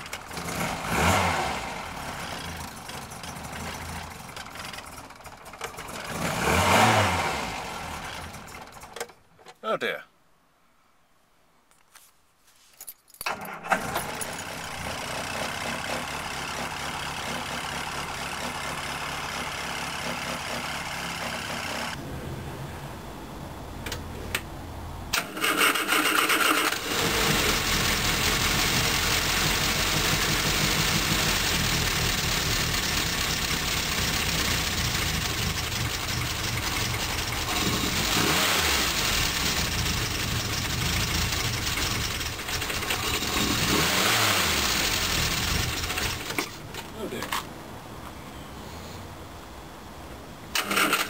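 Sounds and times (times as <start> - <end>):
engine revving: 0.0 - 8.9, 13.7 - 23.2, 25.1 - 46.6, 50.6 - 51.0
car engine cranking and running: 0.0 - 9.5, 13.2 - 22.0, 25.1 - 47.5, 50.5 - 51.0.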